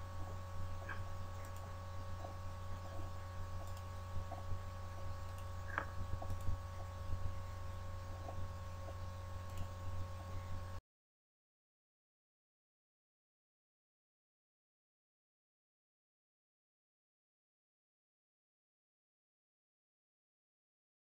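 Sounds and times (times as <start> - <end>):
low electrical hum: 0.0 - 10.8
faint clicks: 3.6 - 4.4.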